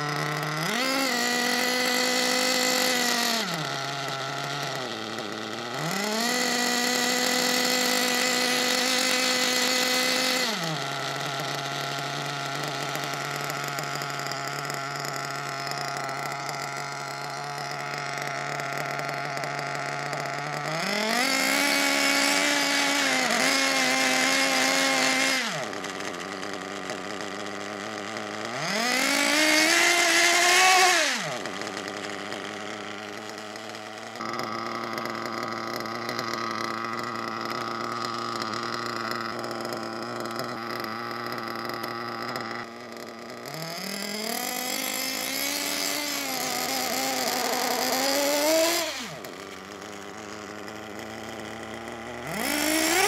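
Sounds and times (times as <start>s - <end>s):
small two-stroke engine revving: 0.0s - 53.0s.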